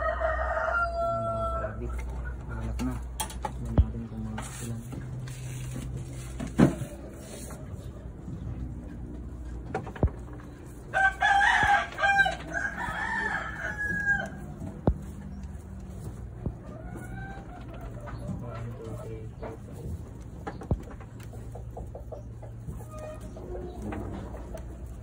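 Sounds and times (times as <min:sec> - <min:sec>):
rooster crowing: 0:00.0 - 0:01.8, 0:10.9 - 0:14.6.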